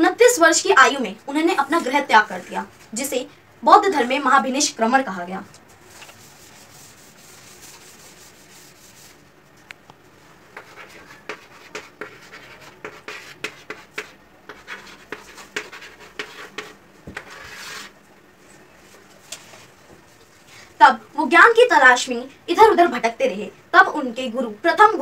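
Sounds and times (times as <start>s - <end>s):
duster wiping chalkboard: 5.7s - 9.2s, 10.5s - 18.0s
chalk tapping and scratching: 5.9s - 9.2s, 10.5s - 17.9s.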